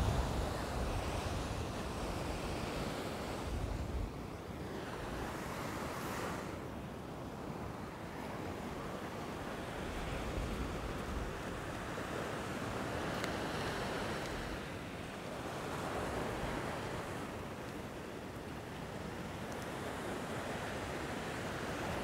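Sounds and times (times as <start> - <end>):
wind rumbling on microphone: 0.0 - 6.6
surf breaking on sand beach: 0.0 - 6.7.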